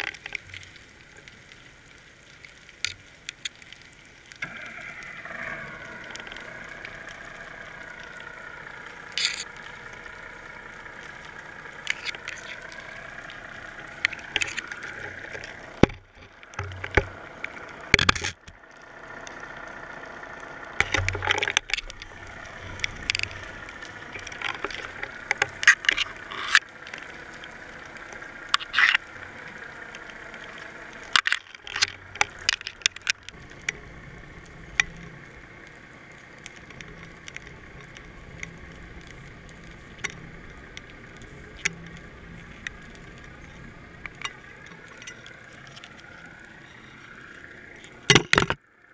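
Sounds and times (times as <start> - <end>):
muffled underwater hum: 0.0 - 48.9
sharp knocks and clicks: 14.0 - 17.2, 48.1 - 48.6.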